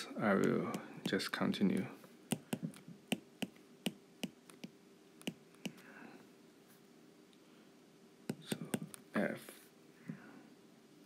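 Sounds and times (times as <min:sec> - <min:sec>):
stylus tapping on glass screen: 0:02.3 - 0:05.8.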